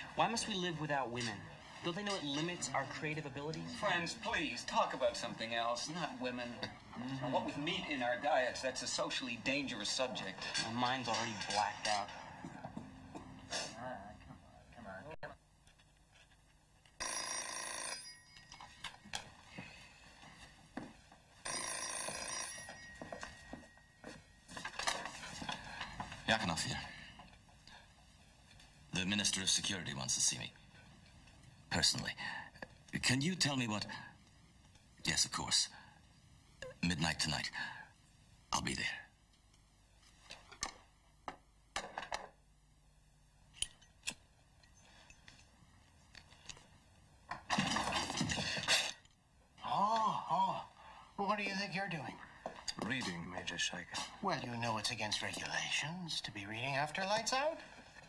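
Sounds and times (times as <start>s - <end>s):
telephone bell ringing: 17.0s - 19.0s, 21.4s - 24.7s
footsteps: 18.6s - 21.3s, 22.1s - 26.3s.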